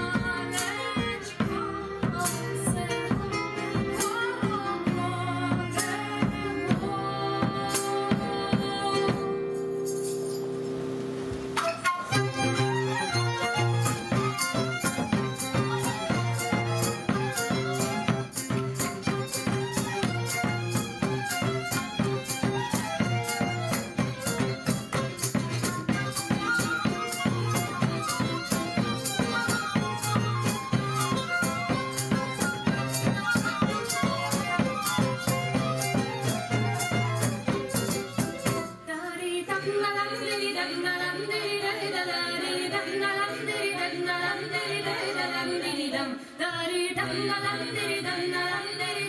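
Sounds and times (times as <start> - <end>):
fiddle melody: 0.0 - 9.2, 11.2 - 39.0
frame drum beat: 0.0 - 9.5, 11.4 - 38.9
unaccompanied voices singing: 0.0 - 9.5, 12.2 - 49.0
acoustic guitar: 0.0 - 41.9.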